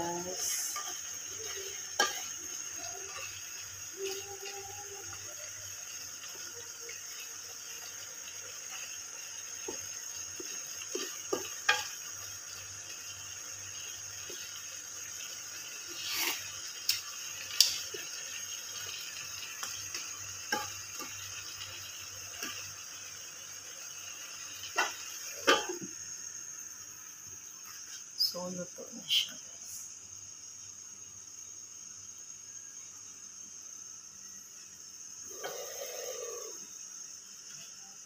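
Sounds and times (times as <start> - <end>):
sauce simmering with a hiss: 0.0 - 38.0
wooden spatula scraping a wok: 15.9 - 16.5.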